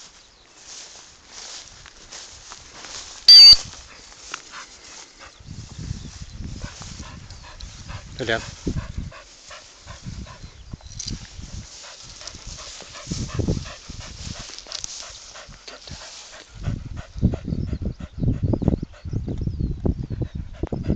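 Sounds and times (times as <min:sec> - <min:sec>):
wind buffeting microphone: 0:04.8 - 0:20.9
dog panting rapidly: 0:06.3 - 0:10.7, 0:11.3 - 0:20.9.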